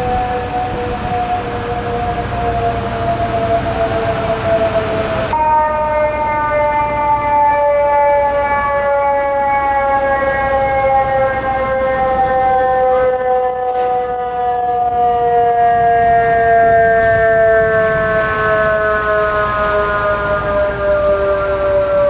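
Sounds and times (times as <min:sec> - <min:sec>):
mechanical siren winding down: 0:00.0 - 0:22.0.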